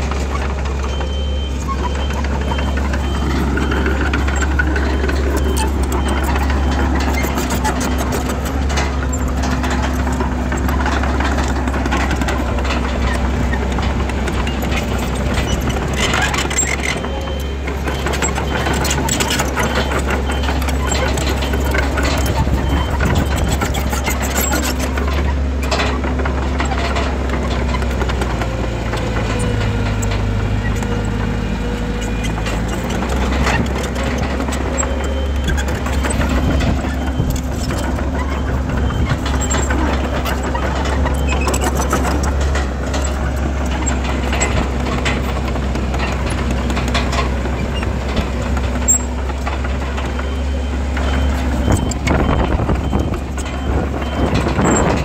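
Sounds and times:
diesel engine running: 0:00.0 - 0:55.0.

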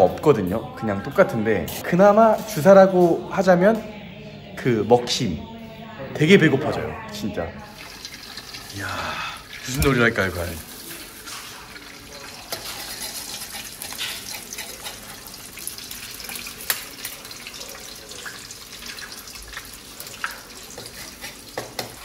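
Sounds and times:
eggs sizzling in a wok: 0:07.6 - 0:22.0
metal ladle scraping wok: 0:12.4 - 0:15.4.

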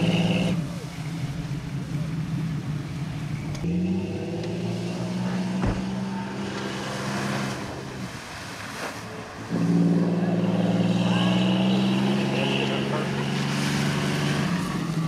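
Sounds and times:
truck engine revving: 0:00.0 - 0:15.0
water and mud spraying: 0:04.8 - 0:15.0.

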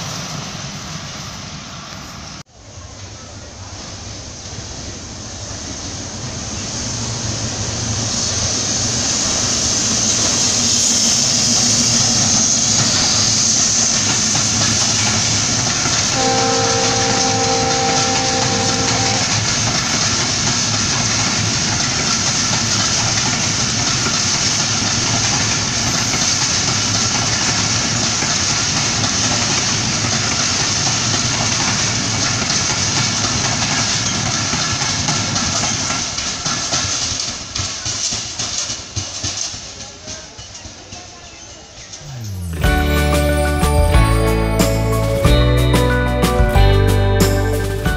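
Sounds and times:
train wheels rumbling on rails: 0:00.0 - 0:47.9
locomotive horn chord: 0:16.0 - 0:19.9.

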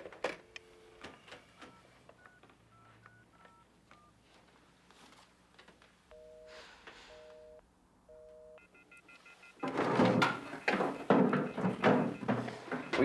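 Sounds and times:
telephone busy signal beeps: 0:06.1 - 0:13.0.

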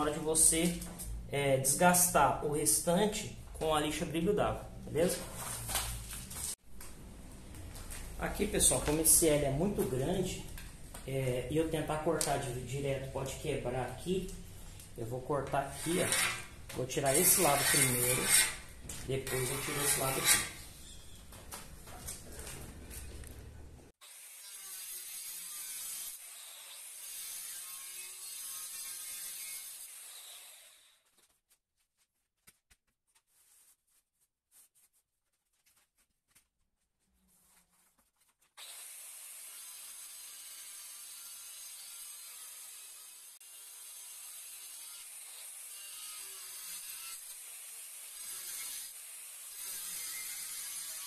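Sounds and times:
saw cutting ceramic tile: 0:15.6 - 0:20.8, 0:24.0 - 0:31.0, 0:38.6 - 0:51.0.

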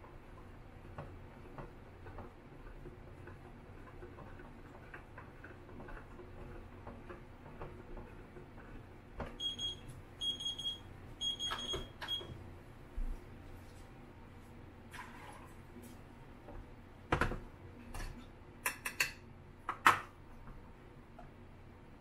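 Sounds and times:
electronic timer beeps: 0:09.4 - 0:12.4.

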